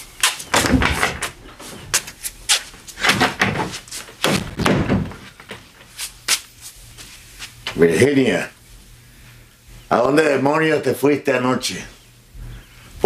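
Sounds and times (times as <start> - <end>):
heavy door thuds: 0.5 - 1.4, 3.0 - 5.6
wooden door knocking: 4.3 - 5.2.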